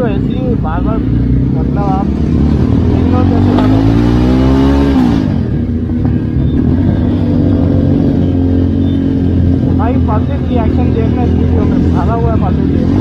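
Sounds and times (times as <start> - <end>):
motorcycle engine revving: 0.0 - 13.0
motorcycle engines running: 0.0 - 13.0.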